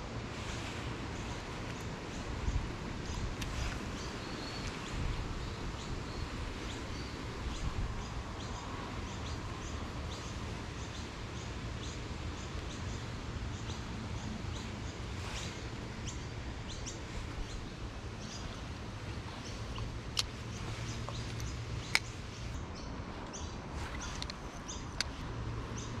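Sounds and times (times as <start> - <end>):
low outdoor rumble: 0.0 - 26.0
small bird chirping: 1.2 - 26.0.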